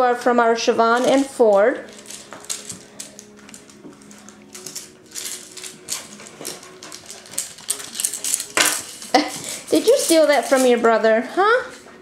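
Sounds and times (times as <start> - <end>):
paws and toys clicking on hard floor: 1.9 - 10.8.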